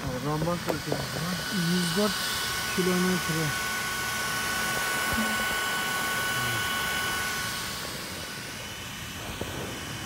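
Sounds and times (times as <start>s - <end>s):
small cooling fans whirring: 0.0s - 10.0s.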